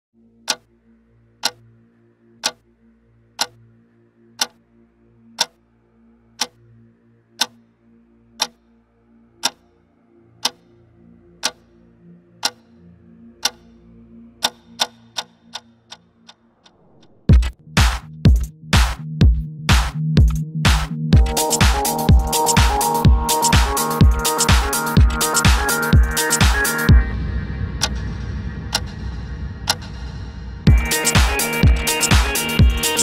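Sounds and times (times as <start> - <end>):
clock-like ticking: 0.5 - 0.7, 1.4 - 1.6, 2.4 - 2.6, 5.4 - 5.6, 9.4 - 9.6, 10.4 - 10.6, 11.4 - 11.6, 12.4 - 12.6, 13.4 - 13.7, 14.4 - 27.0, 27.8 - 28.0, 28.7 - 28.9, 29.7 - 29.9, 30.7 - 33.0
faint low drone: 26.9 - 32.9.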